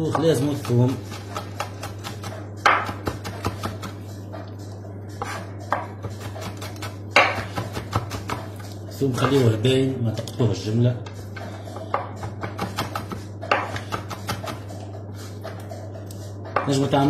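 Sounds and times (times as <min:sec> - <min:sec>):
knife chopping on cutting board: 0:00.0 - 0:04.0, 0:05.1 - 0:08.6, 0:11.4 - 0:14.8
steady low hum: 0:00.0 - 0:17.0.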